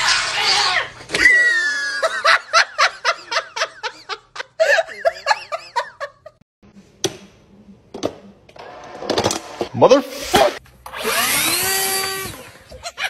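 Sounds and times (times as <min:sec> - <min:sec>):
person giggling: 0:01.3 - 0:06.4.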